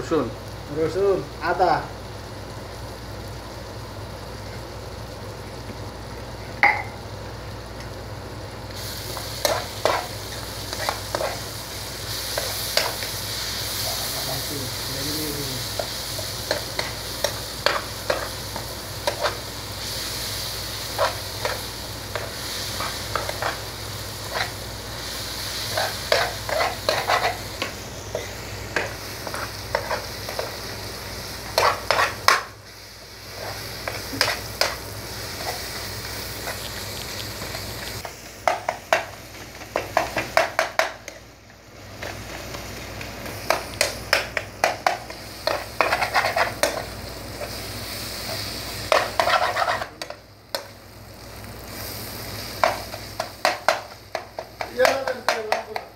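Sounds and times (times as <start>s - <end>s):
vegetables sizzling in oil: 0.0s - 55.9s
spatula scraping a pan: 9.2s - 11.5s, 20.9s - 23.6s, 25.6s - 27.5s, 31.4s - 32.4s, 33.3s - 34.8s, 44.6s - 47.6s, 48.2s - 50.1s.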